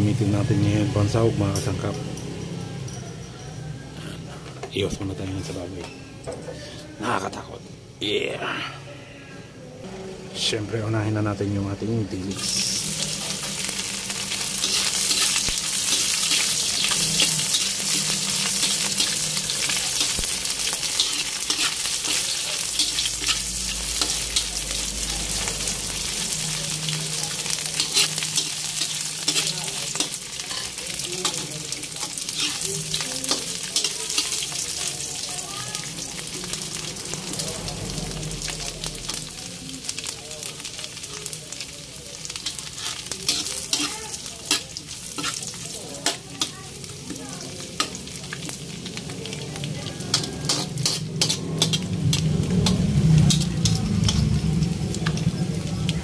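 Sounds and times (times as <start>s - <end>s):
fish sizzling in hot oil: 12.2s - 56.0s
metal ladle scraping a wok: 12.3s - 26.0s, 27.0s - 35.0s, 42.3s - 48.6s, 50.0s - 55.2s.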